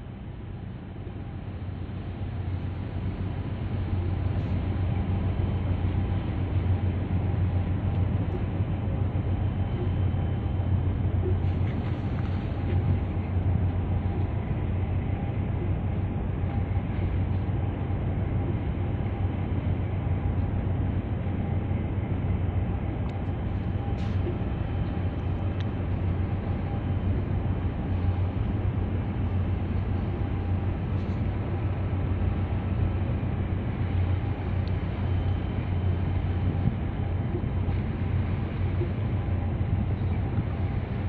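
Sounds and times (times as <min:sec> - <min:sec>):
faint hum: 0:00.0 - 0:41.0
ship engine rumble: 0:00.0 - 0:41.0.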